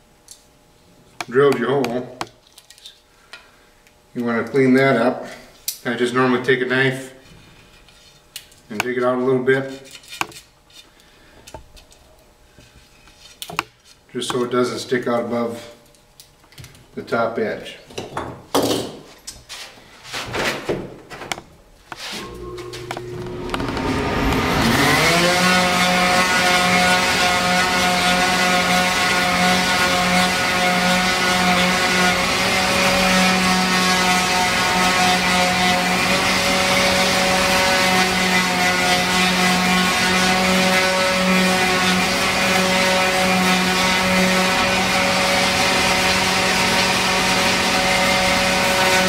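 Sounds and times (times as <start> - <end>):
electric sander running: 22.1 - 49.0.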